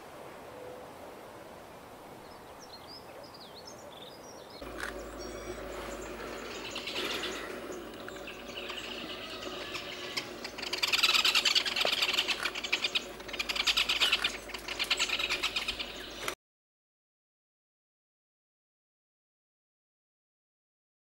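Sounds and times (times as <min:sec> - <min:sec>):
faint birdsong: 0:02.0 - 0:16.4
bird chattering calls: 0:04.6 - 0:16.4.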